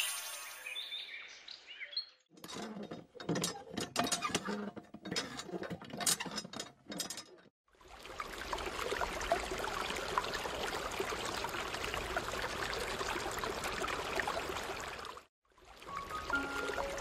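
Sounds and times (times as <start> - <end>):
hand pump handle clicks and creaks: 2.3 - 7.5.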